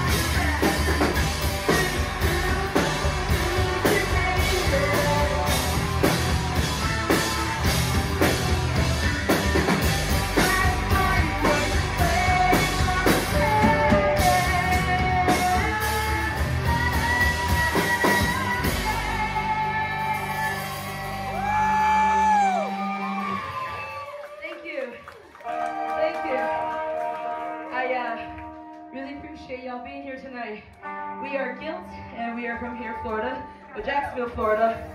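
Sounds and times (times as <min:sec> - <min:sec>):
person singing: 0:00.0 - 0:08.6, 0:09.8 - 0:24.0
drum kit: 0:00.0 - 0:24.0
bass guitar: 0:00.0 - 0:24.2
electric guitars: 0:00.0 - 0:24.4, 0:25.4 - 0:34.9.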